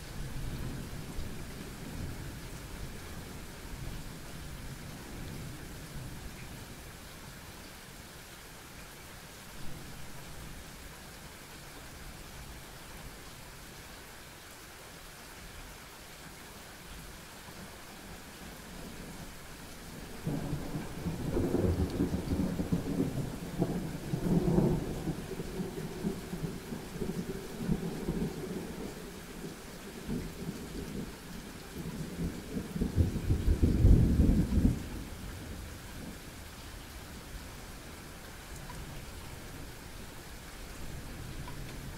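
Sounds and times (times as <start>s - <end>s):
steady rain: 0.0s - 41.9s
thunder rumbling: 20.0s - 36.2s.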